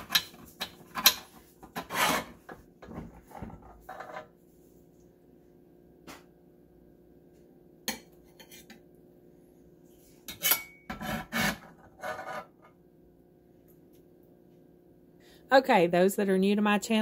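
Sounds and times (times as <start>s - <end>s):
metal spatula scraping pan: 0.0s - 4.3s, 8.3s - 8.8s, 10.3s - 12.7s.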